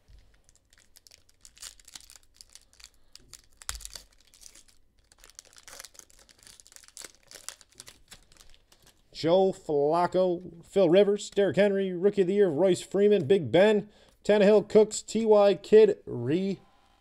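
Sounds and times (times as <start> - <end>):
foil wrapper tearing and crinkling: 0.1 - 9.0.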